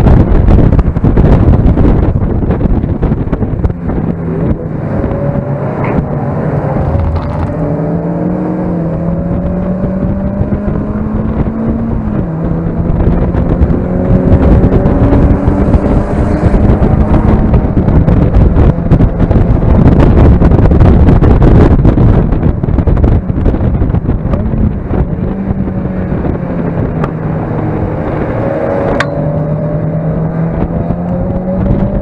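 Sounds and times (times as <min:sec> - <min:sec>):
car engine accelerating: 0:00.0 - 0:32.0
wind buffeting microphone: 0:00.0 - 0:32.0
gear upshift: 0:02.4 - 0:20.6.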